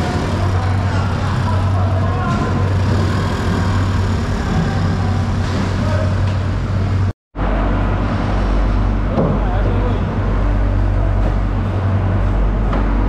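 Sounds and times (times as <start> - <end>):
motor scooter pulling away: 0.0 - 6.9
engines humming: 0.0 - 13.0.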